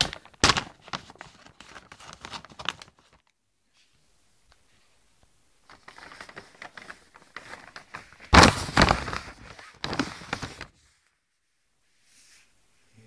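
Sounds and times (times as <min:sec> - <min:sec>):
plastic mailer bag crinkling: 0:00.0 - 0:03.2, 0:05.6 - 0:10.8.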